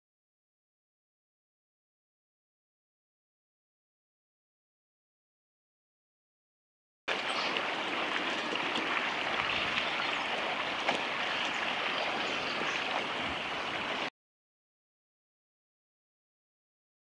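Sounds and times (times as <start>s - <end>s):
shallow river flowing: 7.1s - 14.1s.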